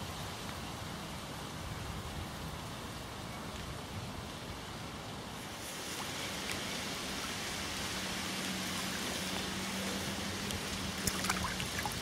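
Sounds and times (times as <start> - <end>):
lake water lapping at bank: 5.4 - 12.0.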